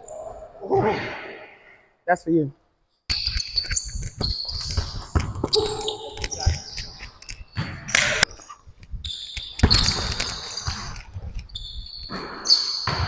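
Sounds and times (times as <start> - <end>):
sneakers squeaking: 3.1 - 13.0.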